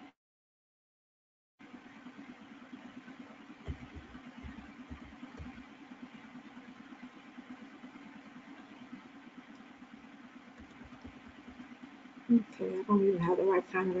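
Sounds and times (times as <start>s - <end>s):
low hum with hiss: 1.6s - 14.0s
soft low knocks: 3.6s - 5.6s.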